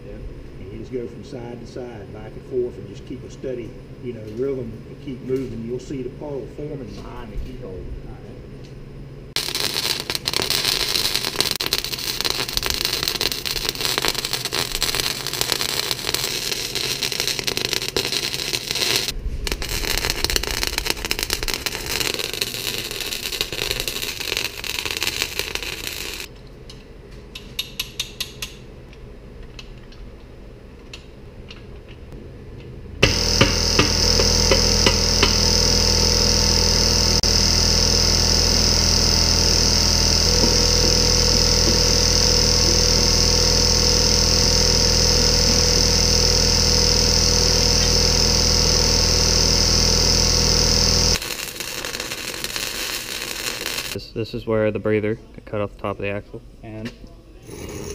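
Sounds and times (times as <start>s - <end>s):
mechanical hum with high whine: 0.0s - 57.9s
welder arc crackling: 9.3s - 26.3s, 33.0s - 54.0s.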